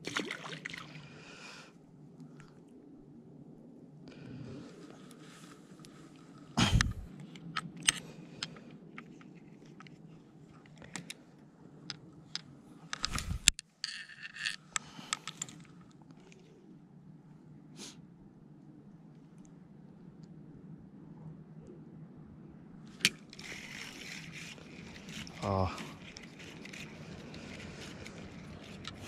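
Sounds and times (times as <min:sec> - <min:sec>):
rod and reel handling noise: 0:06.8 - 0:16.5, 0:22.9 - 0:29.0.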